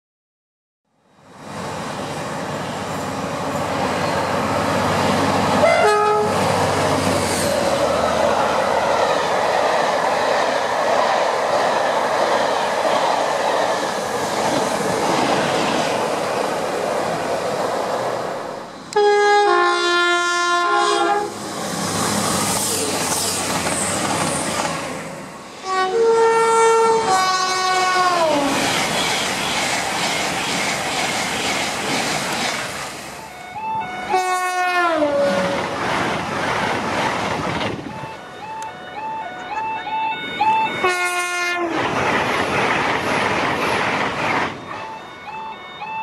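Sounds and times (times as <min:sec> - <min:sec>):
train rushing past: 0:01.1 - 0:46.0
two-tone train horn: 0:05.6 - 0:06.5, 0:18.9 - 0:21.4, 0:25.6 - 0:28.5, 0:33.3 - 0:35.6, 0:37.9 - 0:41.8
wheels clattering over rails: 0:41.8 - 0:44.7.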